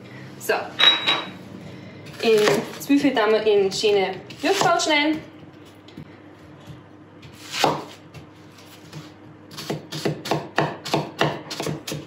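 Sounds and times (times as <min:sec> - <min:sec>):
knife chopping on wooden board: 0:02.1 - 0:02.8, 0:04.3 - 0:04.9, 0:06.6 - 0:12.0.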